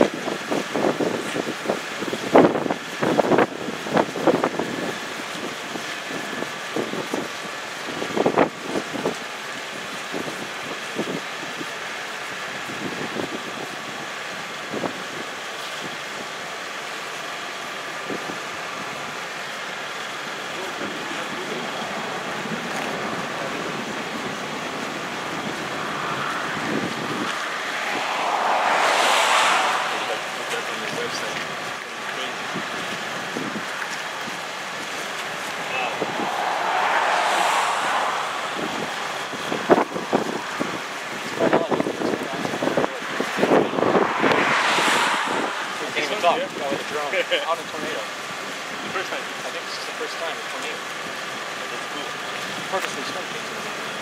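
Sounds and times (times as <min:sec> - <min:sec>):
wind buffeting microphone: 0:21.3 - 0:46.9.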